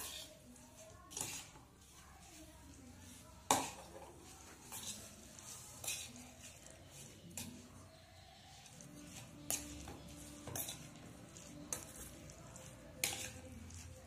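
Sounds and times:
metal spoon clinking in steel bowl: 0:03.5 - 0:07.7, 0:09.0 - 0:14.0.

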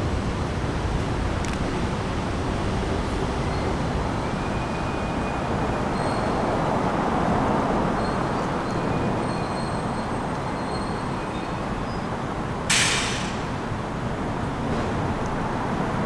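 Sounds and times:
high wheel squeals: 0:03.4 - 0:06.7, 0:07.9 - 0:12.1
train wheels rumbling on rails: 0:12.5 - 0:16.0.

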